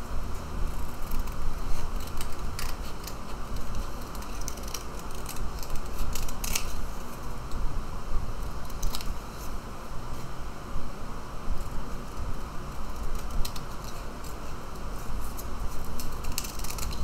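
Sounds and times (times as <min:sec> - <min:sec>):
scissors snipping paper: 0:00.9 - 0:06.8, 0:15.2 - 0:17.0.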